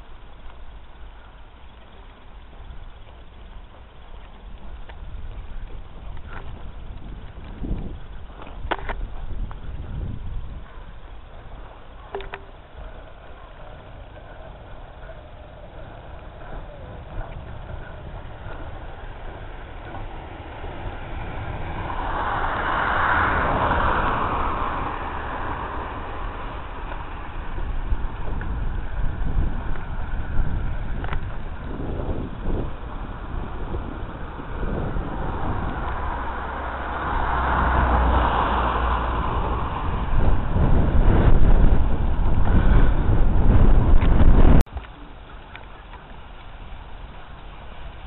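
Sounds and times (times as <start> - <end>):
wind buffeting microphone: 0.0 - 48.0
train passing: 10.6 - 31.0, 31.6 - 43.7.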